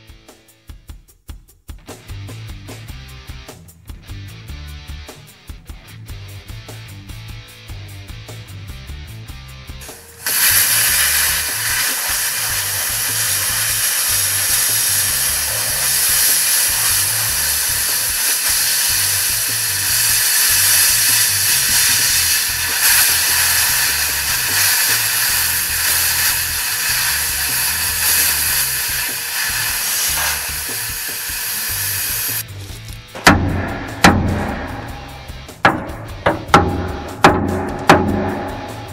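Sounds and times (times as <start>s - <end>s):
plasma cutter hissing: 9.8s - 32.4s.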